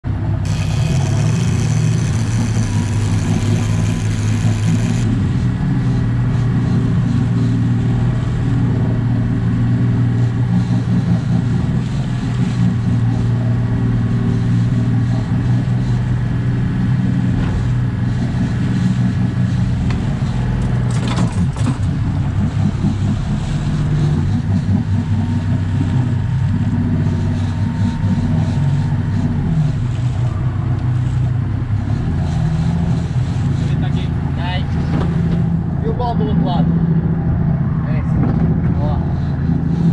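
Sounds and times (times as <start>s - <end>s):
boat engine humming: 0.1s - 39.9s
sharp clatter: 0.4s - 5.2s, 19.8s - 23.2s.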